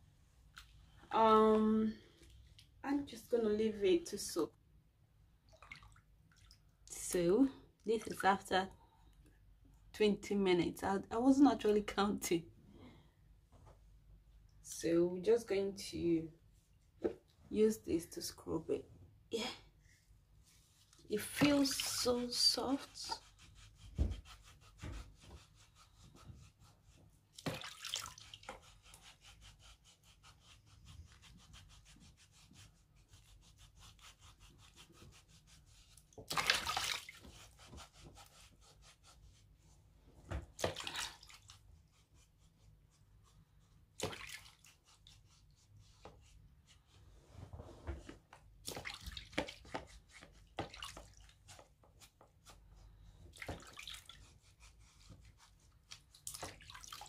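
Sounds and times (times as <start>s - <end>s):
water sloshing: 5.4s - 6.6s, 27.4s - 28.6s, 36.2s - 37.3s, 44.0s - 44.7s, 48.6s - 49.7s
pumice stone rasping on skin: 21.3s - 27.4s, 28.2s - 36.3s, 37.1s - 39.8s, 44.6s - 47.0s, 49.2s - 52.8s, 54.0s - 56.5s.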